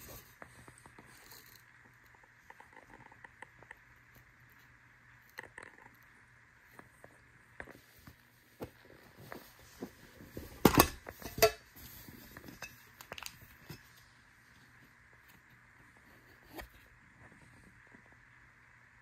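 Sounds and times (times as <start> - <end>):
metal tin lid clanking: 10.6 - 11.6.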